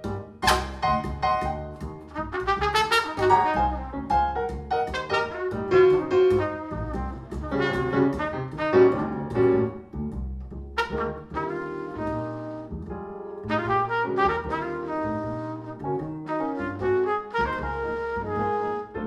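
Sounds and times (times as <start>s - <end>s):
piano: 0.0s - 19.0s
upright bass: 0.0s - 19.0s
trumpet playing quick runs: 2.2s - 4.0s, 4.9s - 9.1s.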